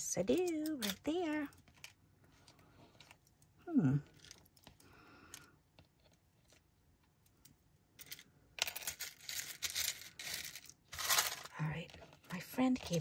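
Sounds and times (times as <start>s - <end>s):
buttons rattling in plastic box: 0.1s - 2.0s, 8.6s - 13.0s.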